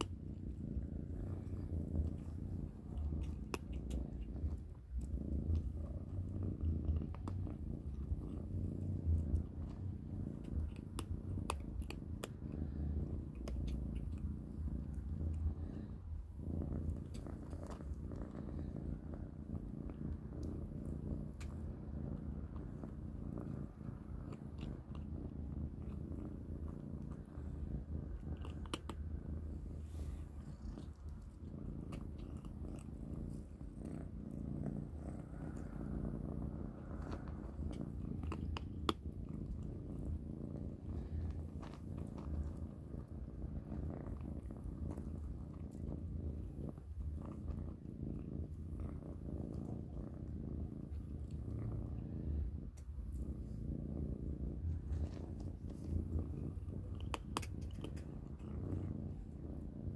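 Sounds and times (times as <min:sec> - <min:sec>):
kittens purring: 0:00.0 - 0:59.9
crunchy chewing clicks: 0:01.2 - 0:08.5, 0:09.1 - 0:12.6, 0:13.2 - 0:15.4, 0:22.4 - 0:27.5, 0:28.1 - 0:29.2, 0:36.8 - 0:40.1, 0:56.8 - 0:58.9.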